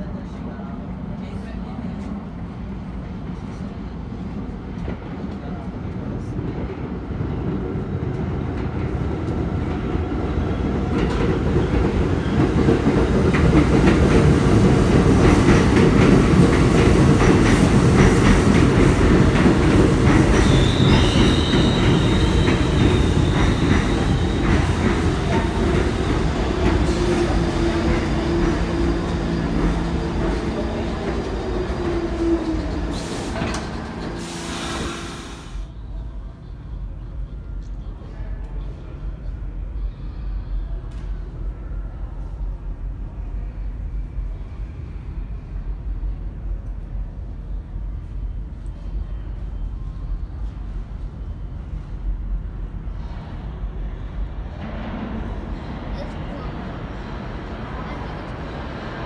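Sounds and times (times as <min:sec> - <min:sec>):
train wheel rumble and clatter: 0:01.1 - 0:35.4
high wheel squeal: 0:20.4 - 0:24.7.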